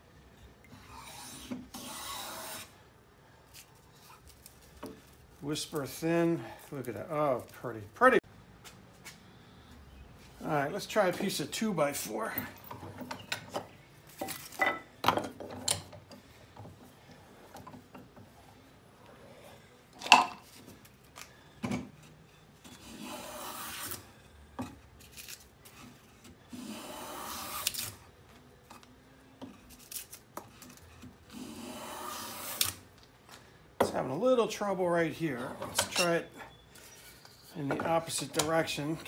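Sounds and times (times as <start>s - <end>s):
hand plane shaving wood: 0.8s - 2.7s, 22.8s - 24.0s, 26.6s - 27.8s, 31.4s - 32.8s.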